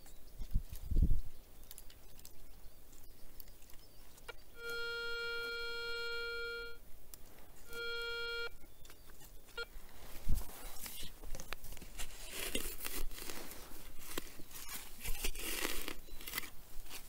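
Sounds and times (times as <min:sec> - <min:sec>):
metal detector beeping: 0:04.6 - 0:06.8, 0:07.6 - 0:08.7.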